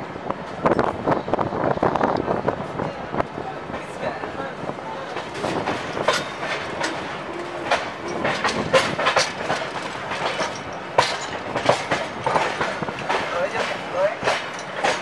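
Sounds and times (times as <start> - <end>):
train running rumble: 0.0 - 15.0
train wheels clattering over joints: 3.6 - 15.0.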